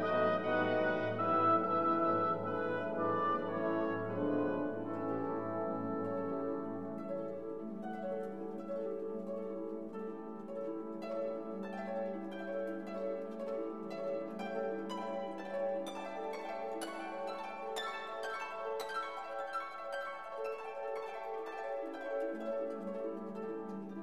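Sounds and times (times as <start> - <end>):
instrumental music: 0.0 - 24.0.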